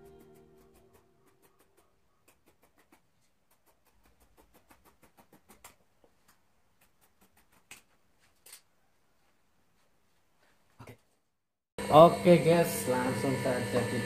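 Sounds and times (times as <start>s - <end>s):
scissors snipping fabric: 6.8s - 8.6s.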